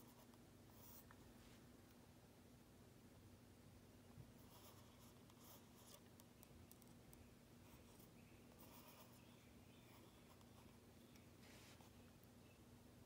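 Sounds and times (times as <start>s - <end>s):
pencil scratching on paper: 4.4s - 6.0s, 7.6s - 9.3s.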